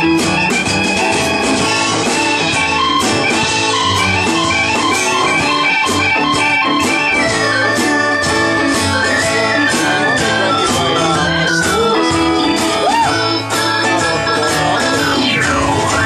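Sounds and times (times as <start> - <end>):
electric guitar: 0.0 - 16.0
organ keyboard: 0.0 - 16.0
steady drum beat: 0.0 - 16.0
upright bass: 0.0 - 16.0.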